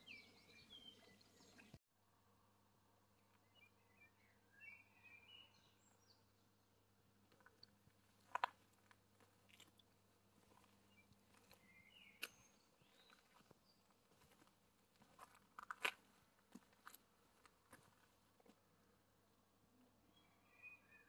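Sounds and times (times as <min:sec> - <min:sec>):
bird chirps: 0:00.0 - 0:01.8, 0:03.3 - 0:06.4, 0:10.9 - 0:13.9, 0:20.1 - 0:21.0
faint outdoor evening ambience: 0:00.0 - 0:21.0.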